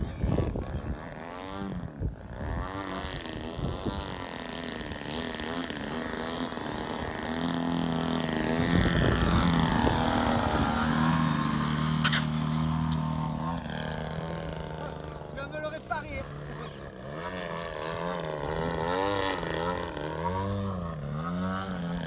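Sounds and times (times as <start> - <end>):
model plane engine revving: 0.0 - 22.0.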